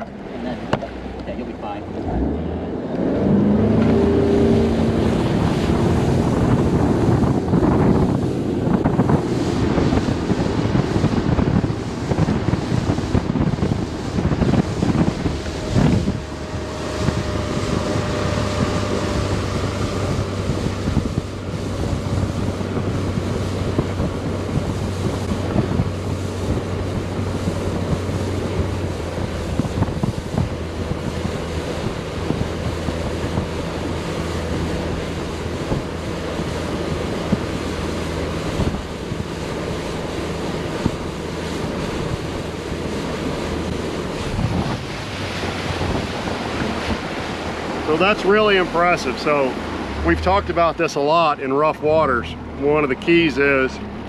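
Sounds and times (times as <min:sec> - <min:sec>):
outboard motor accelerating: 0:00.0 - 0:54.0
water rushing past hull: 0:00.0 - 0:54.0
wind on microphone: 0:00.0 - 0:54.0.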